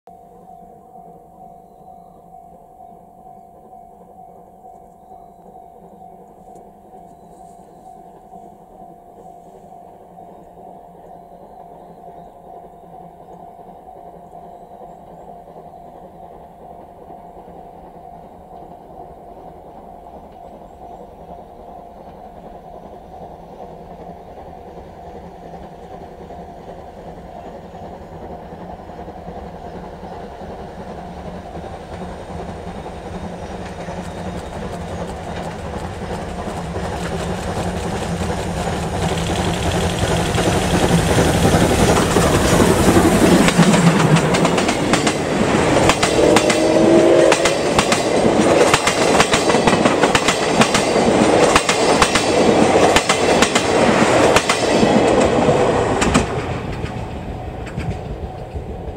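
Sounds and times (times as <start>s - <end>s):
steam locomotive passing: 0.1s - 58.9s
wheels clacking over rail joints: 12.6s - 58.9s.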